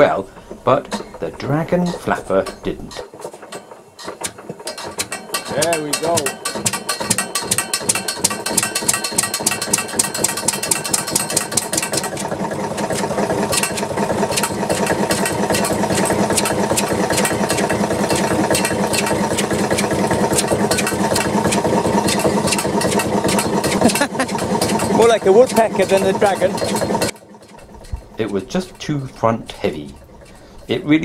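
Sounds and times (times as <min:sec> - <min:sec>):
stationary engine knocking: 0:00.0 - 0:31.0.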